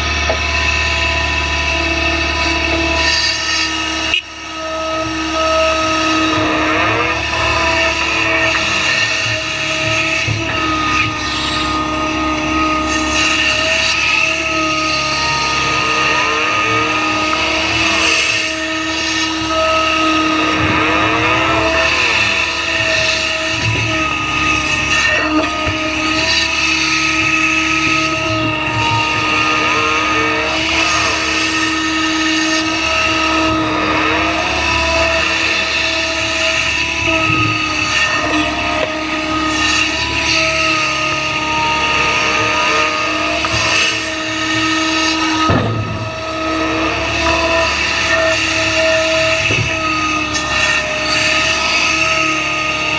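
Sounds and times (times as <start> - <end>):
excavator diesel engine: 0.0 - 52.9
hydraulic whine: 0.0 - 52.9
sliding tones: 0.0 - 52.9.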